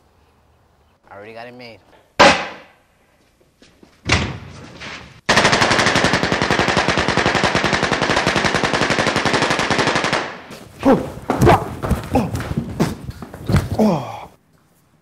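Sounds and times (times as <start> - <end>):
machine-gun burst: 5.3 - 10.3.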